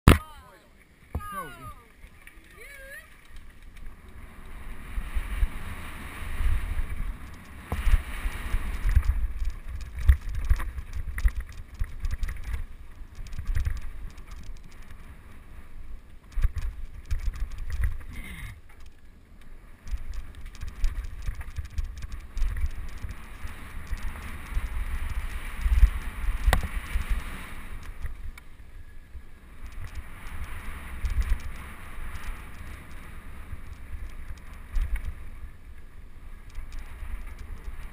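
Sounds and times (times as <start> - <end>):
wind buffeting microphone: 2.6 - 15.1, 19.8 - 28.4, 29.4 - 35.5
bike rattling over bumps: 6.8 - 15.2, 16.2 - 19.1, 19.8 - 28.4, 29.6 - 35.3.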